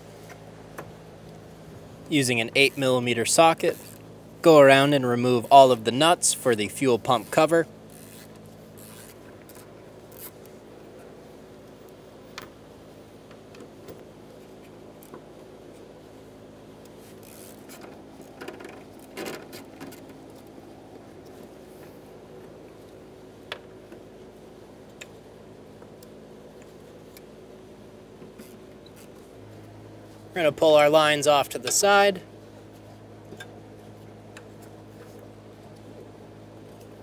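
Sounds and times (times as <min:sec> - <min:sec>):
steady low hum: 0:00.0 - 0:37.0
ratchet clicking and scraping: 0:03.6 - 0:04.0, 0:07.2 - 0:10.5, 0:17.0 - 0:20.1.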